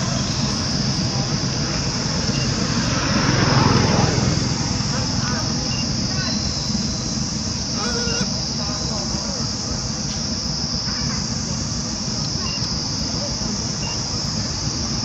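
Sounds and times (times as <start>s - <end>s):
insect chorus drone: 0.0s - 15.0s
brief high peeps: 7.7s - 8.4s.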